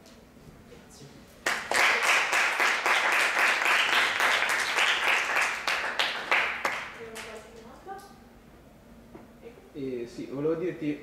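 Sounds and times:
audience applauding: 1.4 - 7.3.

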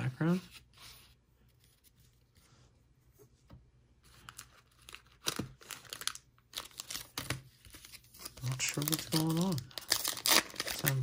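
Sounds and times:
foil wrappers crinkling: 4.2 - 11.0.

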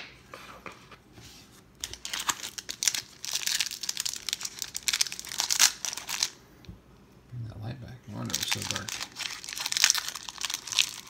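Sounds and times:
card pack wrapper crinkling and tearing: 1.8 - 6.4, 8.1 - 11.0.

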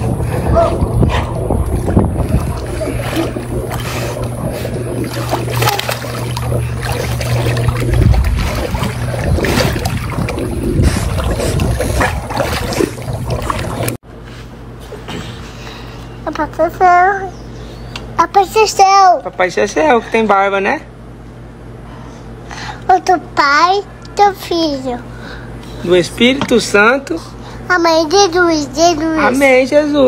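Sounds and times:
steady low rumble: 0.0 - 14.0
water splashing and lapping: 0.0 - 14.0.

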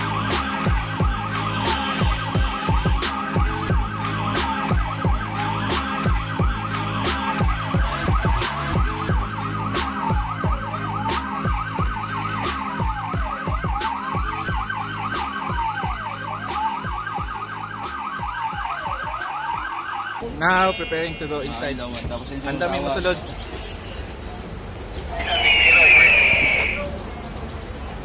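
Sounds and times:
electronic siren warbling: 18.3 - 21.5, 25.2 - 26.8.

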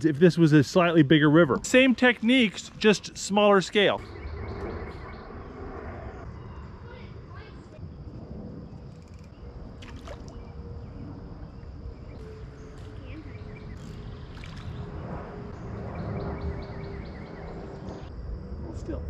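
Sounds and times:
high insect drone: 0.1 - 19.0
low rumble: 3.9 - 19.0
fishing rod clicks and rustles: 8.9 - 9.4.

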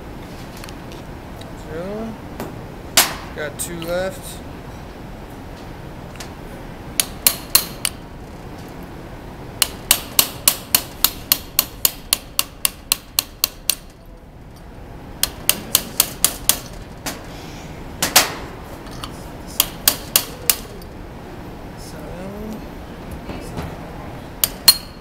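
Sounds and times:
hammer tapping metal punch: 7.0 - 8.0, 9.6 - 14.1, 15.2 - 16.8, 19.6 - 20.9, 24.4 - 25.0.

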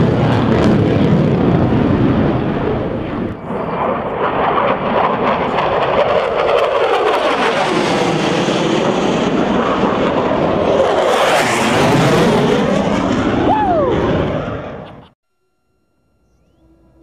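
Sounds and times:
jet engine roar flying overhead: 0.0 - 15.2.

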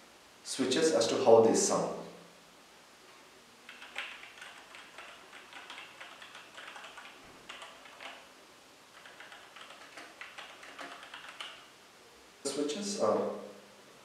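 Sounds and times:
keyboard key clicks: 3.7 - 8.2, 9.0 - 11.7.

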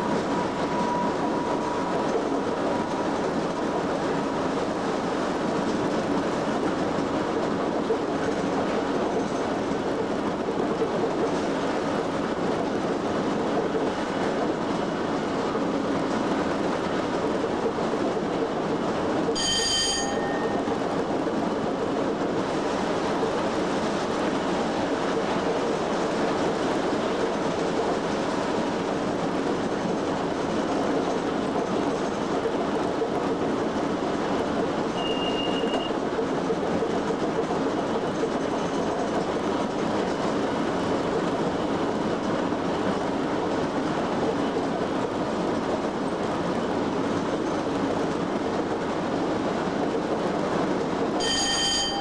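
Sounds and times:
train wheels rumbling on rail: 0.0 - 52.0
short bell ding: 19.4 - 20.6, 51.2 - 52.0.

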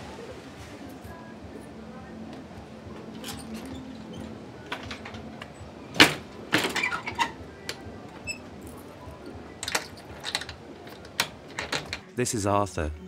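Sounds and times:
key and padlock rattling on latch: 3.1 - 12.1.

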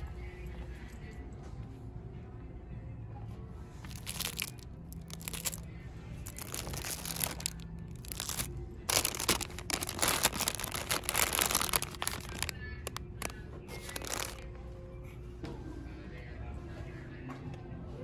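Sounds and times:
plastic wrap crinkling: 3.9 - 14.4.

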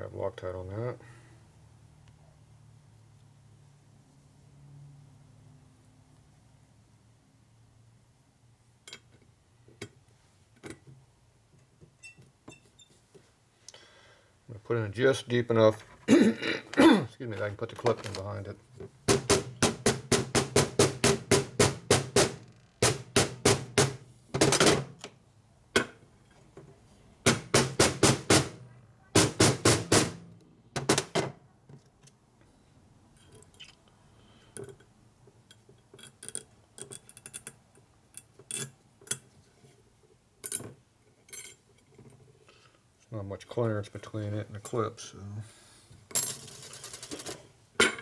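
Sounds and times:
small metal parts clicking: 35.5 - 39.3.

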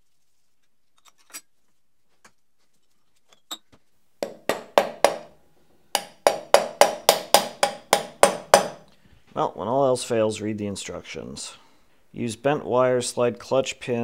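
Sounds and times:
sharp metallic knocks: 4.2 - 5.4, 6.0 - 8.9.

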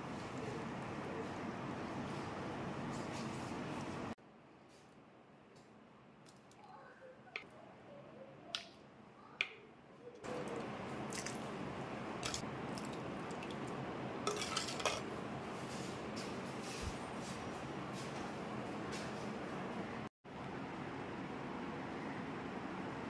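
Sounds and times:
curry squelching and dripping: 9.4 - 14.9
steel ladle clinking on clay pots: 14.3 - 15.0.

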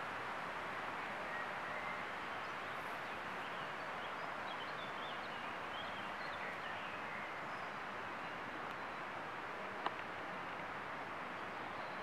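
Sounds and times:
songbird chirping and twittering: 1.2 - 9.1.

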